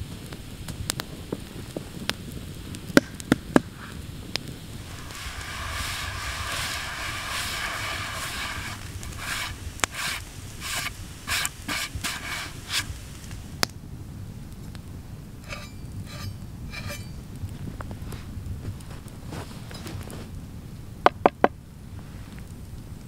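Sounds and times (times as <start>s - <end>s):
snow scrubbed on wooden board: 4.8s - 13.4s.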